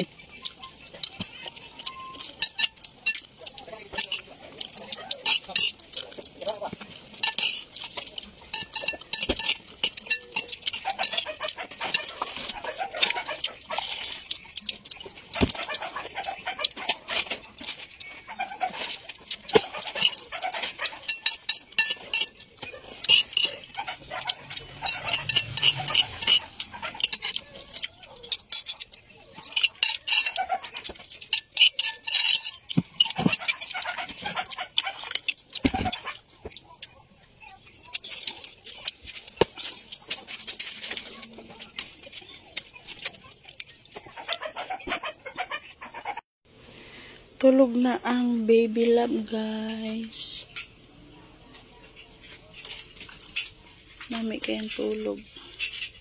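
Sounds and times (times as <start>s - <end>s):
chewing mouth sounds: 0.0s - 44.9s
metal spoon scraping ceramic bowl: 0.6s - 36.0s.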